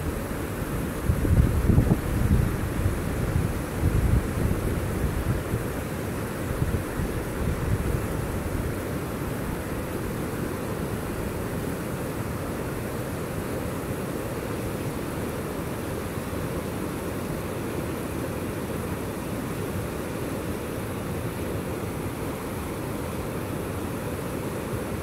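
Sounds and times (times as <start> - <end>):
wind buffeting the microphone: 1.0 - 5.7, 6.4 - 8.7.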